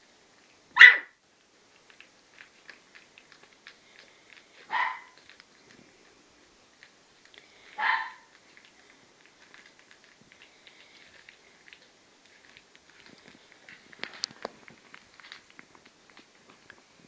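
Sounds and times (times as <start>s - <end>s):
puppy barking: 0.7s - 1.2s, 4.6s - 5.3s, 7.7s - 8.4s
small paws scratching and pattering: 1.2s - 17.0s.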